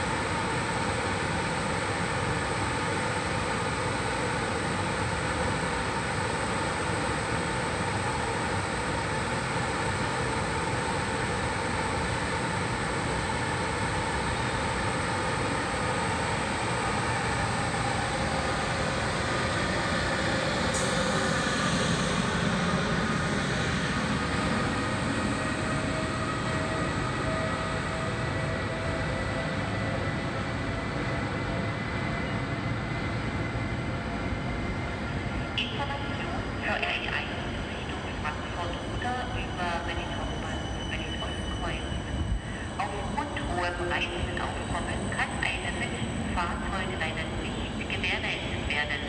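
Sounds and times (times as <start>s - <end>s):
electric locomotive whine: 0.0s - 49.0s
train coaches rolling past: 9.9s - 49.0s.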